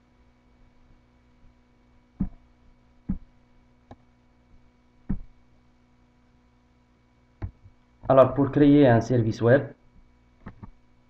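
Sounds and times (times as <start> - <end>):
faint electrical hum: 0.0 - 11.0
computer mouse clicking: 10.4 - 10.8.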